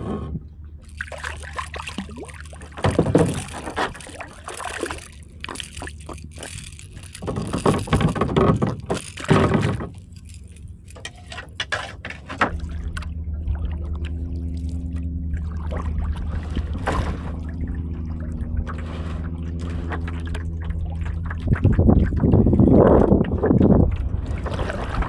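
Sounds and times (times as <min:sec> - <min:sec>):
small boat motor running: 0:00.0 - 0:25.0
fish splashing into water: 0:00.8 - 0:11.0
fishing tackle clicks: 0:00.8 - 0:11.6.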